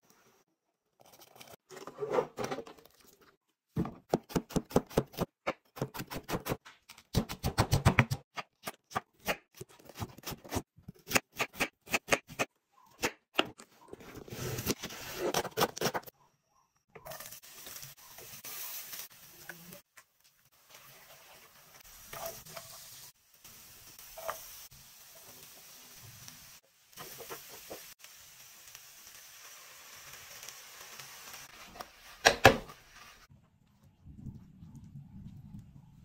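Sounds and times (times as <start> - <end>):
onions sizzling in oil: 17.0 - 33.3.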